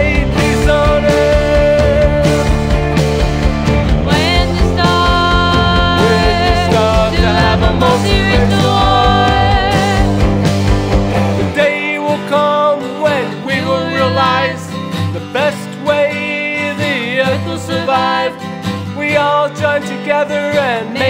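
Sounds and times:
person singing: 0.0s - 2.7s, 3.9s - 10.4s, 11.3s - 21.0s
deep bass: 0.0s - 11.6s
guitar backing: 0.0s - 21.0s.

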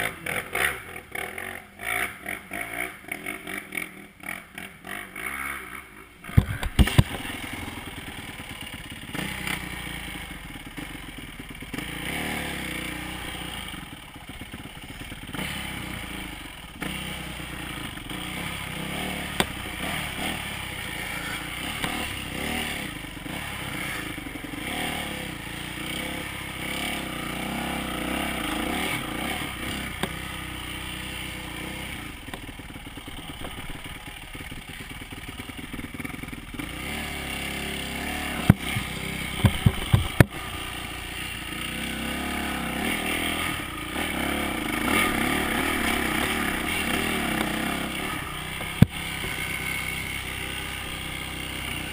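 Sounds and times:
dirt bike engine revving: 0.0s - 51.9s
sharp knocks: 38.5s - 40.4s.

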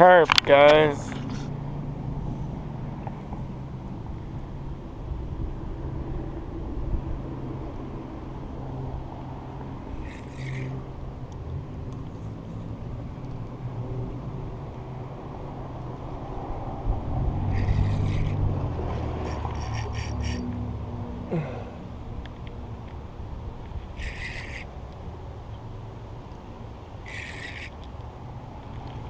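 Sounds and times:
engine low drone: 0.0s - 29.0s
road traffic hum: 0.0s - 29.0s
high squeak: 17.6s - 18.4s, 19.2s - 20.5s, 24.0s - 24.7s.

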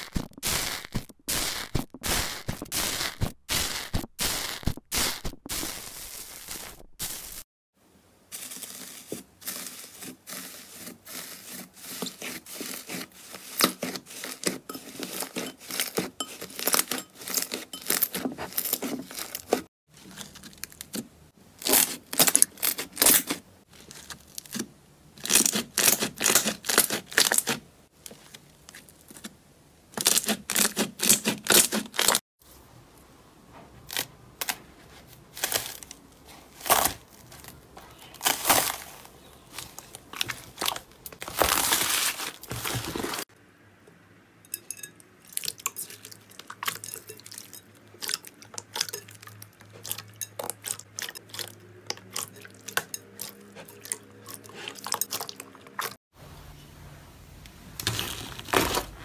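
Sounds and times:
foam bead slime crackling: 0.0s - 7.4s, 8.3s - 21.0s, 35.3s - 43.3s
foil crinkling on slime: 0.0s - 7.4s, 8.3s - 21.0s, 35.2s - 43.3s, 57.8s - 59.0s.

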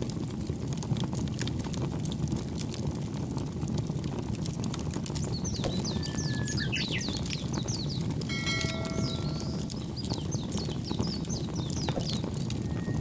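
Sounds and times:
small birds chirping: 5.0s - 13.0s
low rushing background: 8.3s - 10.2s.

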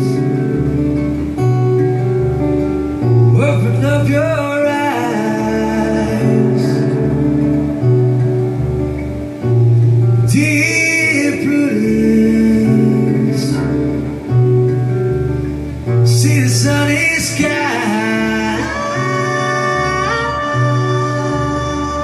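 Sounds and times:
acoustic guitar chords: 0.0s - 22.0s
man singing: 3.3s - 7.3s, 10.3s - 14.0s, 16.0s - 22.0s.

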